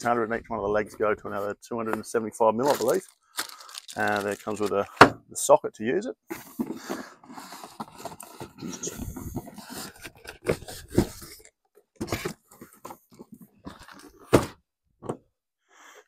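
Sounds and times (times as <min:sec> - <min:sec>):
cardboard rustling and crunching: 0:02.6 - 0:05.1, 0:06.3 - 0:14.6.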